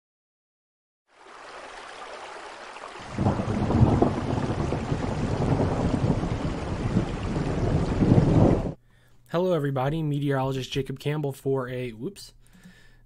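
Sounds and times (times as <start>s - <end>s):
rain hissing: 1.2s - 8.8s
thunder rumbling: 3.1s - 8.8s.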